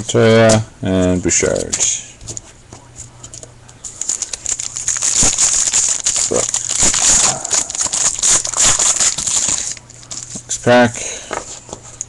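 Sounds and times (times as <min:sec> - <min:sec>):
foil wrapper crinkling and tearing: 0:03.8 - 0:10.6.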